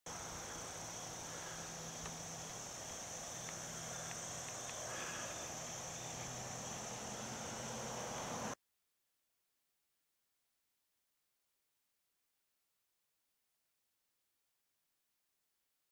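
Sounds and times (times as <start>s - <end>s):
insects chirring: 0.1s - 8.6s.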